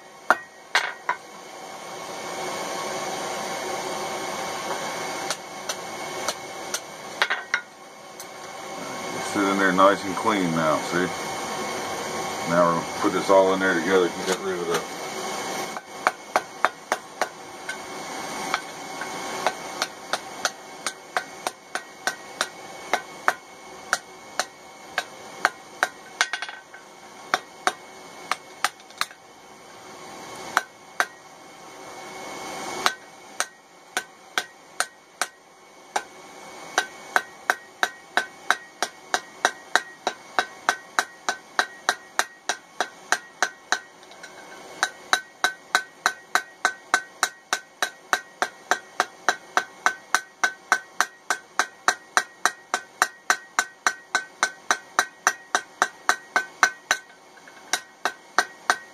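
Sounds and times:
hammer striking hot metal on anvil: 0:00.3 - 0:01.2, 0:04.7 - 0:08.3, 0:13.9 - 0:14.9, 0:15.7 - 0:29.2, 0:30.5 - 0:31.2, 0:32.8 - 0:58.9.

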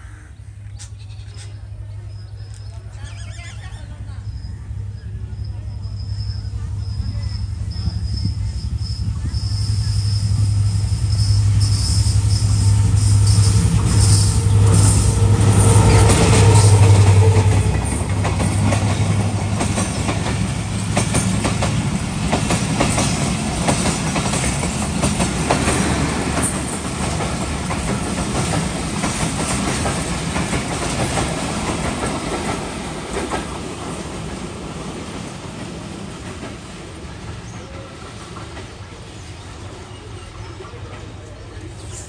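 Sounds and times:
locomotive engine drone: 0:00.4 - 0:29.1
train rumble: 0:00.4 - 0:42.0.

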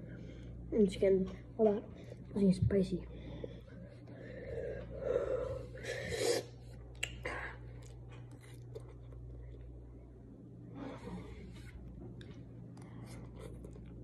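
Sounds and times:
faint chewing and mouth clicks: 0:06.7 - 0:09.9, 0:11.8 - 0:14.0.

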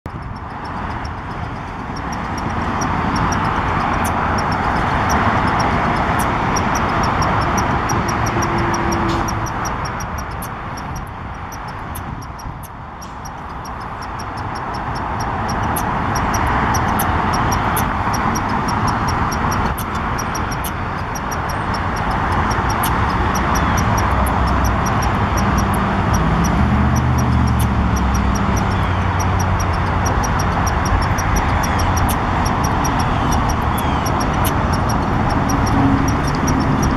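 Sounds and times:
squirrel chattering chirps: 0:15.0 - 0:26.6, 0:27.6 - 0:36.9.

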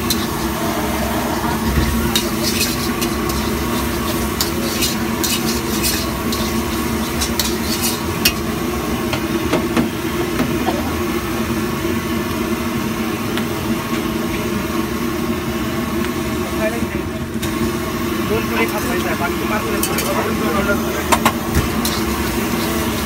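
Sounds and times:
metal spatula scraping a wok: 0:00.0 - 0:08.6, 0:19.8 - 0:20.4, 0:21.6 - 0:23.0
food sizzling: 0:00.0 - 0:23.0.

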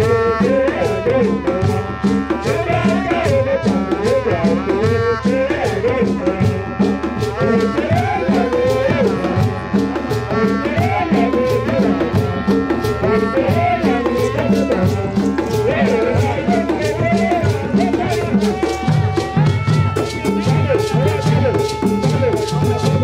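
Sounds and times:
hand drums playing: 0:00.0 - 0:23.0
wind instrument notes: 0:00.0 - 0:23.0.

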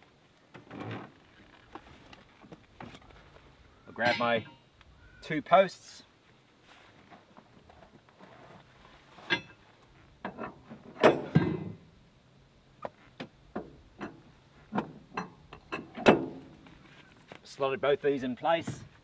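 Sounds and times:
metal bars knocking and clinking: 0:04.0 - 0:04.6.

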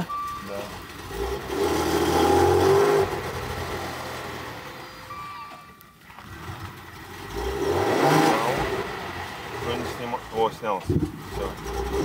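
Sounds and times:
short electronic tones: 0:04.8 - 0:05.9.

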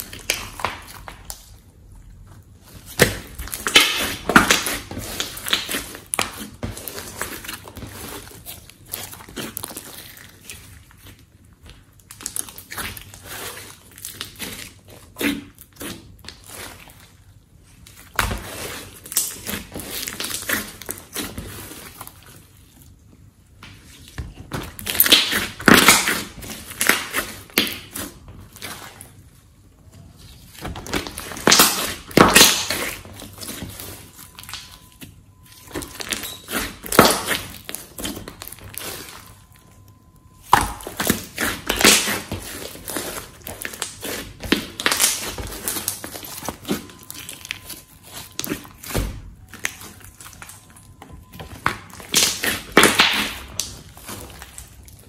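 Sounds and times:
hands squishing slime: 0:00.0 - 0:55.0.

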